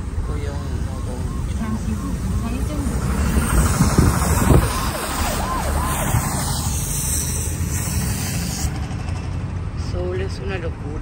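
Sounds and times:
car road noise rumble: 0.0 - 11.0
short rising and falling tones: 3.0 - 7.0.

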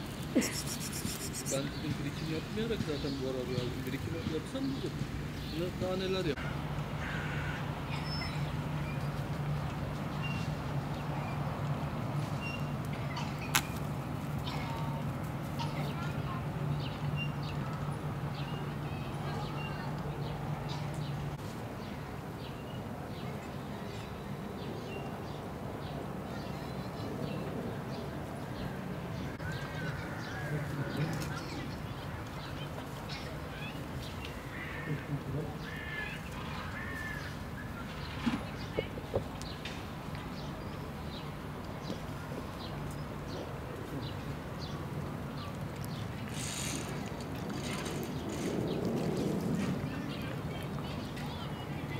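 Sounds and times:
small birds chirping: 0.0 - 6.0
small bird chirping: 0.3 - 1.8.

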